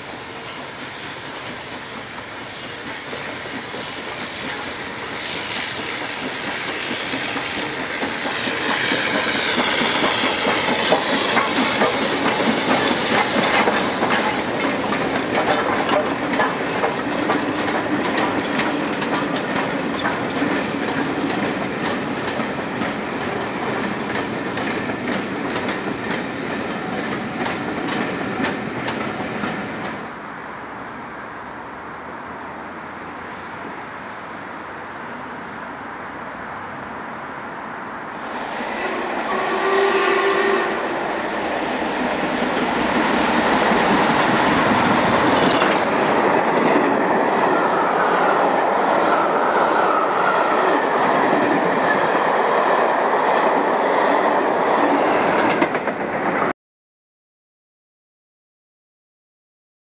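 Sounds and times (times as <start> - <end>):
steam hiss: 0.0 - 21.2
steam train running past: 0.0 - 56.5
wheels clattering over rail joints: 5.8 - 30.0.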